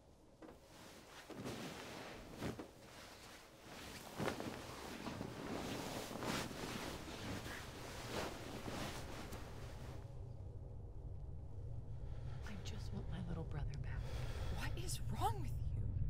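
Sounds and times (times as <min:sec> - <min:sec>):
bedsheets rustling: 0:00.4 - 0:10.1.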